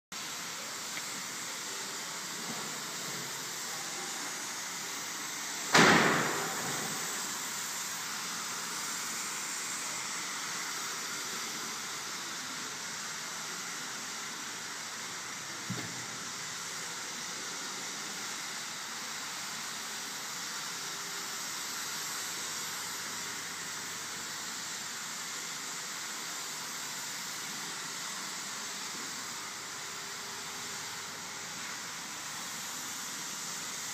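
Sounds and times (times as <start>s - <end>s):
steady hiss: 0.2s - 33.9s.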